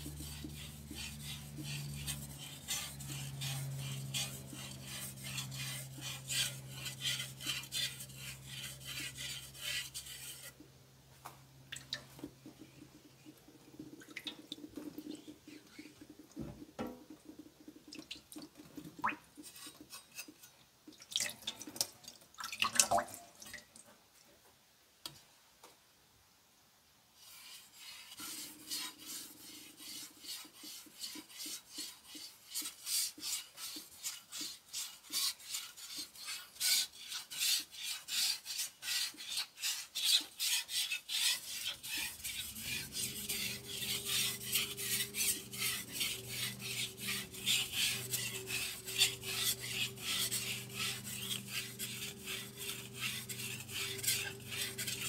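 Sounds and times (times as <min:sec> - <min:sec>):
knife scraping on whetstone: 0:00.0 - 0:10.6, 0:19.4 - 0:20.5, 0:27.2 - 0:55.0.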